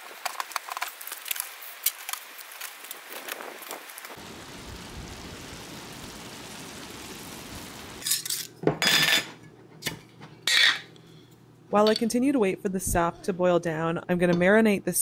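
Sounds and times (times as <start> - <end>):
sap boiling in pan: 0.0 - 11.0.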